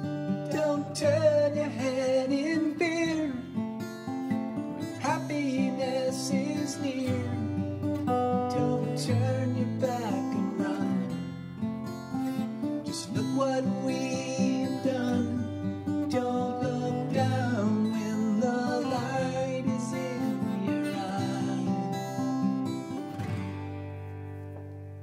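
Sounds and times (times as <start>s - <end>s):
acoustic guitar chords: 0.0s - 25.0s.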